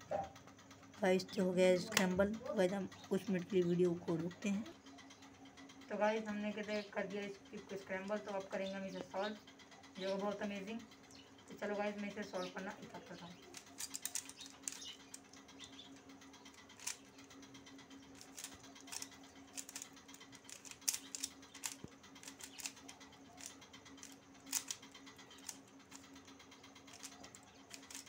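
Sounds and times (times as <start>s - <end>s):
puzzle cube clicking and rattling: 1.1s - 4.7s, 11.5s - 28.0s.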